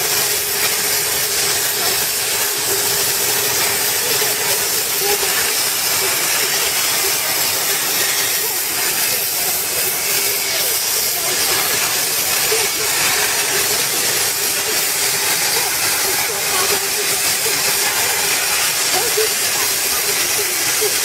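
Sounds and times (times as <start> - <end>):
plasma torch hissing: 0.0 - 21.0.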